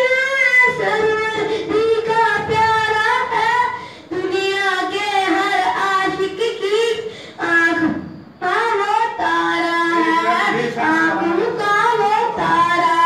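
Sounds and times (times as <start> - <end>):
boy singing a hymn: 0.0 - 13.0.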